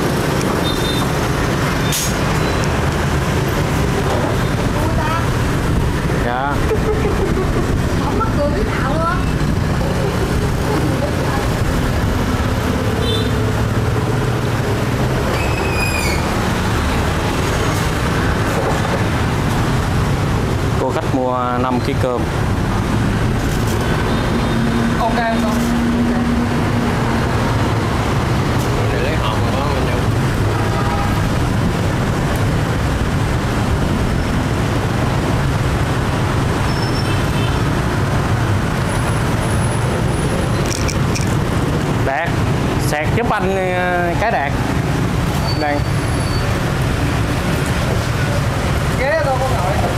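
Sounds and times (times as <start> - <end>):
city street traffic rumble: 0.0 - 49.9
brief high-pitched squeal: 15.3 - 16.4, 36.6 - 37.2.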